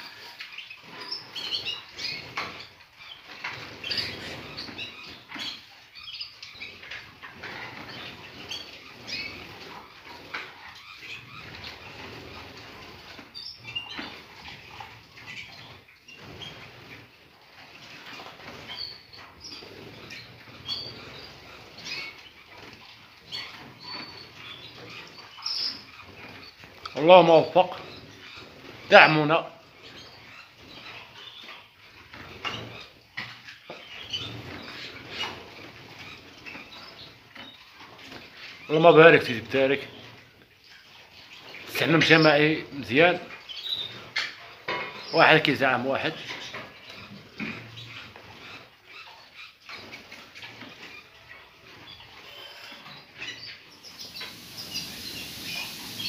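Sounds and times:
wings fluttering and splashing: 0:00.0 - 0:56.0
birds fluttering wings: 0:06.6 - 0:29.2, 0:53.8 - 0:56.0
high bird chirps: 0:51.9 - 0:56.0.

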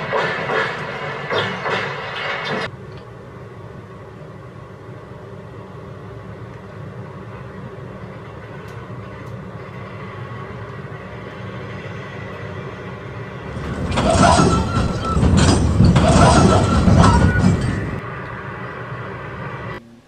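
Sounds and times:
model train wheels rumbling on rails: 0:06.6 - 0:19.6.

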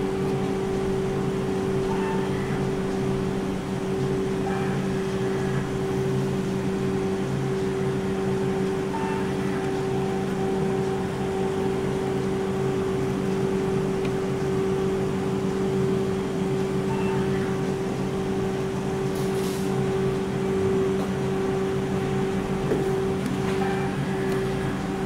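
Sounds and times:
ice cream machine humming: 0:00.0 - 0:25.0.

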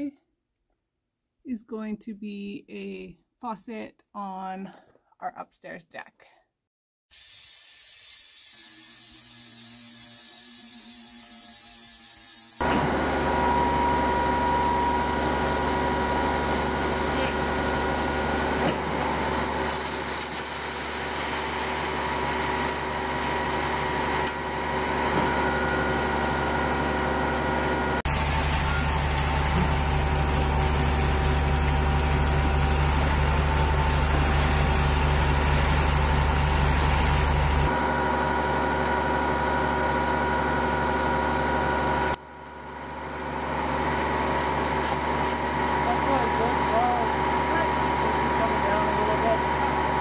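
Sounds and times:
diesel pump truck engine droning: 0:12.6 - 0:50.0.

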